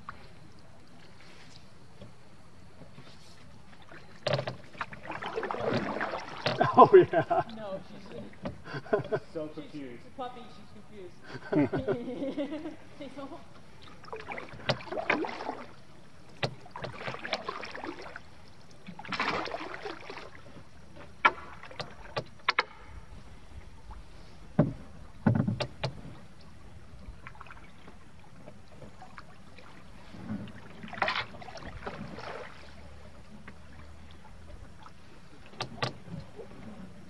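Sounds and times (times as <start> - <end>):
paddle strokes splashing: 0.0 - 11.0, 12.7 - 37.0
knocks on canoe: 16.4 - 17.5, 24.5 - 26.2.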